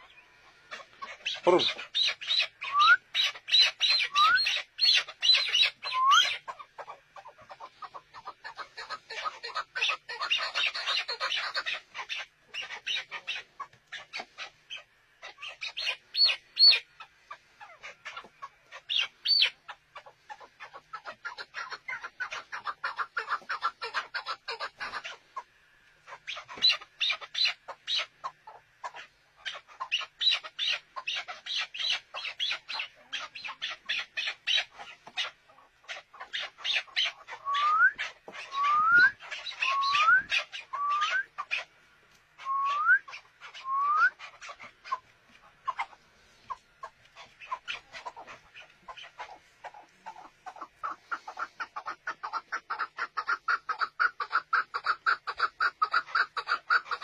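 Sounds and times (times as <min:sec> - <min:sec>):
partridges clucking calls: 0:00.0 - 0:57.0
rising whistled bird notes: 0:02.6 - 0:03.1, 0:03.9 - 0:04.5, 0:05.8 - 0:06.3, 0:37.4 - 0:41.3, 0:42.4 - 0:44.2.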